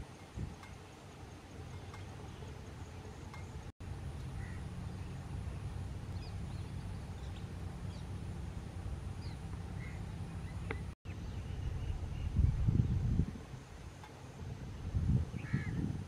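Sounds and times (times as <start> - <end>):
low rumble: 3.8 - 15.8.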